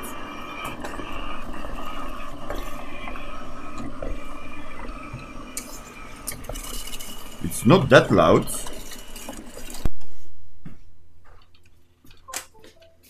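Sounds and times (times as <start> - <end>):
robot vacuum cleaner whirring: 0.0 - 10.2.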